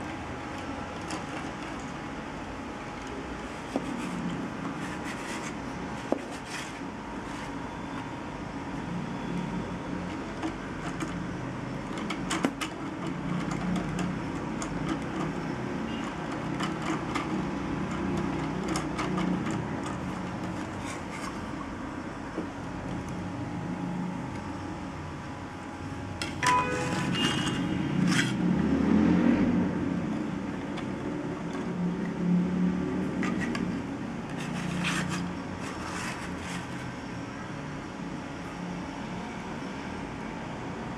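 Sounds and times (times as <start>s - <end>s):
plastic gears whirring: 10.0s - 21.5s.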